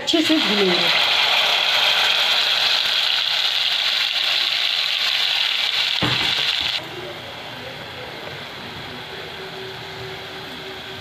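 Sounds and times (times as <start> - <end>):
paste sizzling in hot butter: 0.2 - 6.8.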